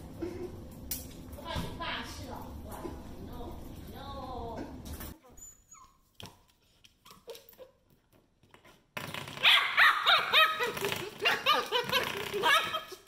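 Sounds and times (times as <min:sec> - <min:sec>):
puppy yapping and barking: 0:09.4 - 0:11.6.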